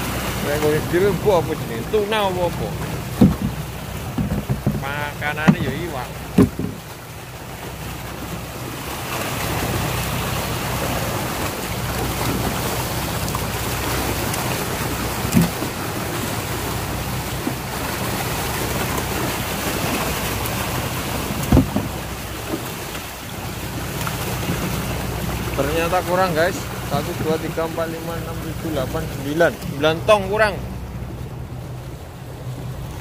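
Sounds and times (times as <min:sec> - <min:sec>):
boat engine humming: 0:00.0 - 0:33.0
fish thrashing and water splashing: 0:00.0 - 0:33.0
sharp knocks: 0:03.1 - 0:06.9, 0:15.3 - 0:15.7, 0:21.4 - 0:22.6.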